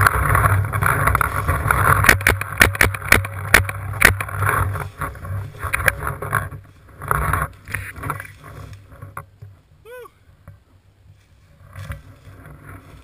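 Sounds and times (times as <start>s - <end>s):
low rumble of handling noise: 0.0s - 13.0s
rustling: 0.0s - 13.0s
sharp knocks: 2.0s - 4.2s.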